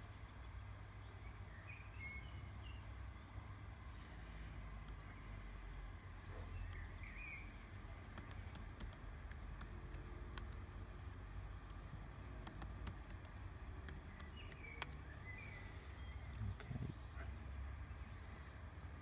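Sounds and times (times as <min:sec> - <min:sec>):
bird chirping: 0:00.0 - 0:10.6, 0:12.4 - 0:18.6
laptop keys clicking: 0:08.1 - 0:11.2, 0:12.4 - 0:15.0.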